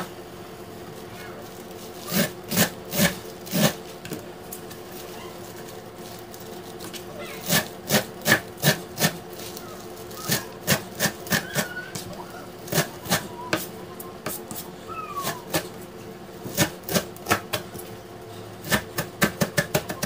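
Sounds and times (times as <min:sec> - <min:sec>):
steady low hum: 0:00.0 - 0:20.0
knife chopping on plastic board: 0:18.6 - 0:20.0.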